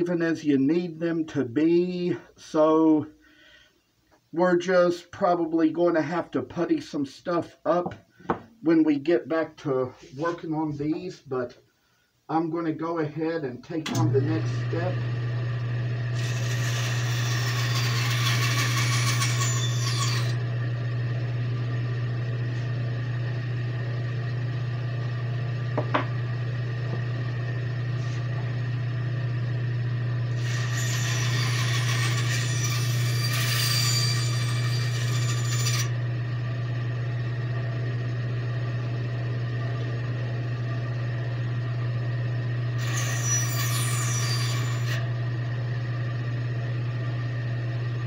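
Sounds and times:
motor hum: 0:13.9 - 0:48.0
bandsaw cutting wood: 0:14.0 - 0:21.0, 0:30.3 - 0:36.0, 0:42.8 - 0:45.0.

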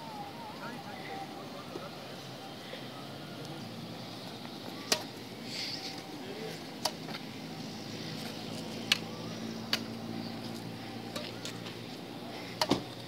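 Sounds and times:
rackets hitting shuttlecock: 0:04.7 - 0:05.2, 0:06.7 - 0:07.3, 0:08.8 - 0:10.0, 0:12.5 - 0:13.0.

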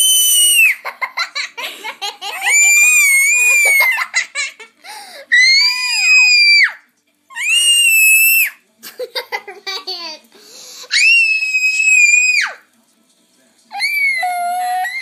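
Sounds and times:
toddler screaming: 0:00.0 - 0:00.8, 0:02.4 - 0:04.1, 0:05.3 - 0:08.6, 0:10.9 - 0:12.6, 0:13.7 - 0:15.0.

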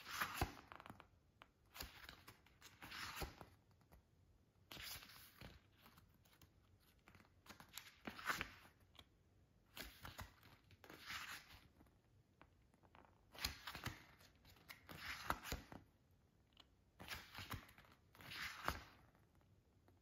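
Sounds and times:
pages turning: 0:00.0 - 0:04.0, 0:04.7 - 0:09.1, 0:09.7 - 0:11.9, 0:12.9 - 0:15.8, 0:17.0 - 0:19.4.

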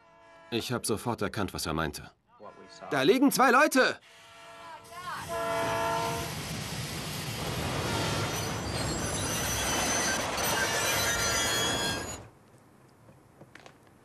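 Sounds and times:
train rumbling along tracks: 0:04.8 - 0:12.3
wheels squealing on rails: 0:07.6 - 0:12.3.

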